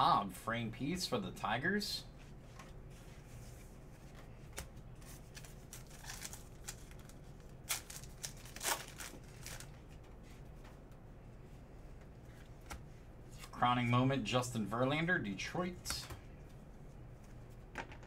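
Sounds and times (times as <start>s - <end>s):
card wrapper crinkling and tearing: 5.0s - 9.8s.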